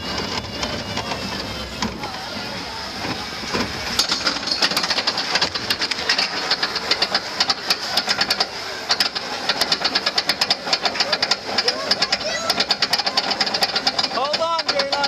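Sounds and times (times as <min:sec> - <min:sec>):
roller coaster train rolling: 0:00.0 - 0:15.0
rapid ratchet clicking: 0:03.0 - 0:15.0.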